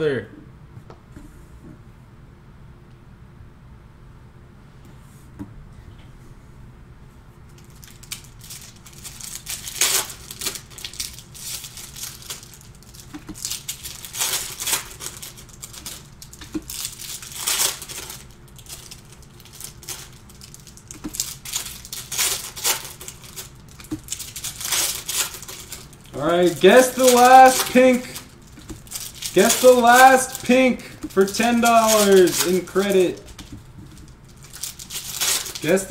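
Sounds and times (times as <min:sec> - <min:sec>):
plastic wrappers crinkling and tearing: 0:07.5 - 0:35.9
cards being handled: 0:07.6 - 0:35.9.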